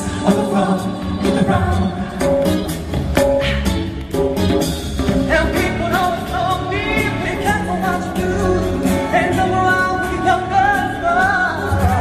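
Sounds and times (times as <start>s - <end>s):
male vocal group singing: 0.0s - 2.4s, 5.2s - 12.0s
band playing: 0.0s - 12.0s
bass: 0.0s - 12.0s
steady drum beat: 0.0s - 12.0s.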